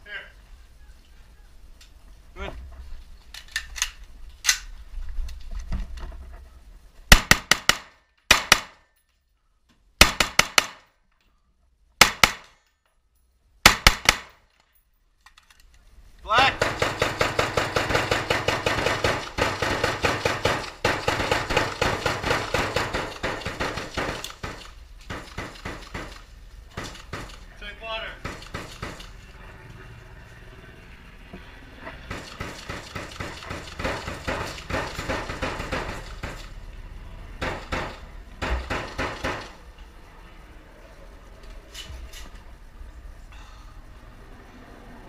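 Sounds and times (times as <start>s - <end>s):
gunfire bursts: 7.1s - 8.8s, 10.0s - 10.9s, 12.0s - 12.6s, 13.6s - 14.4s, 16.4s - 27.5s, 32.1s - 36.4s.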